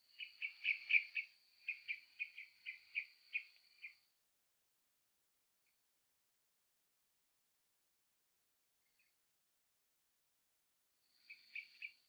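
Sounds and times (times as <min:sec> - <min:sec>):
small bird chirping: 0:00.0 - 0:04.1, 0:11.0 - 0:12.0.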